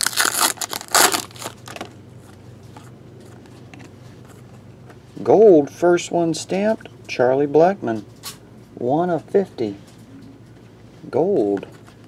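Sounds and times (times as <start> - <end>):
foil wrapper crinkling: 0.0 - 1.9
cards rustling: 0.0 - 4.4.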